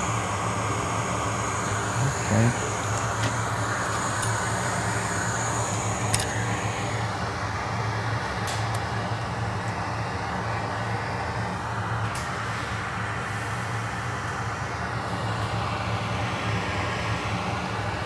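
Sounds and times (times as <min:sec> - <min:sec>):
extractor fan humming: 0:00.0 - 0:12.3.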